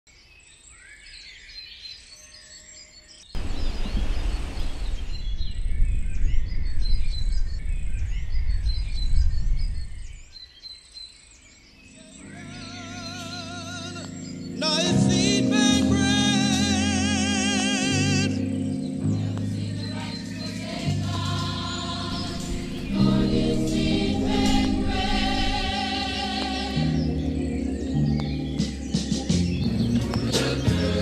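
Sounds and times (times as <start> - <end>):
birds chirping and singing: 0.1 - 31.0
loud low rushing noise: 3.4 - 10.3, 20.6 - 27.1
music with wavering held notes: 11.8 - 31.0.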